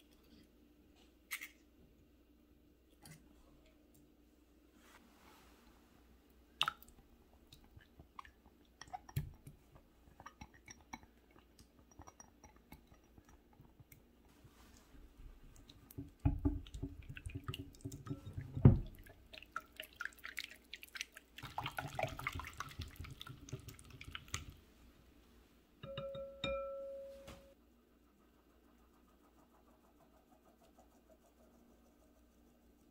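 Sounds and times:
glass bowl clink: 0:25.8 - 0:27.6.

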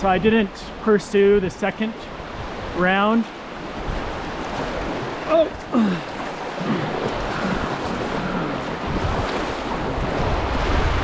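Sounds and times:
creek water rushing: 0:00.0 - 0:11.0
person exclaiming: 0:05.2 - 0:06.1
wind on microphone: 0:06.2 - 0:11.0.

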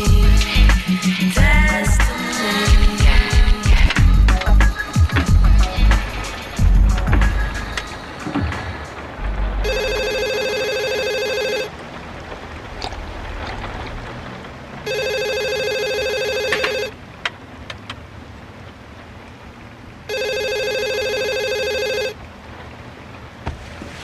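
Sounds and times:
cordless telephone ringing: 0:09.7 - 0:11.7, 0:14.9 - 0:16.9, 0:20.1 - 0:22.2.

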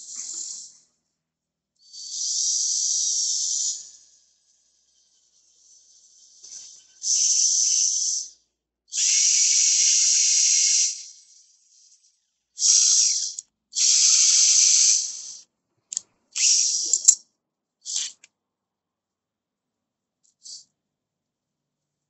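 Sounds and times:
sharp click: 0:16.8 - 0:17.2.

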